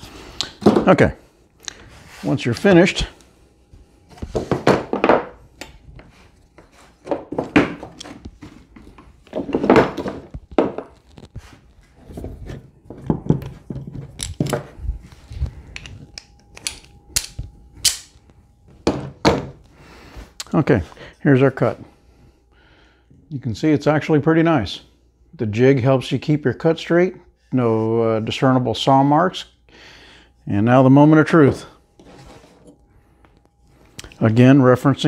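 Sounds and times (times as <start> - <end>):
clamps knocking on workbench: 18.8 - 19.5.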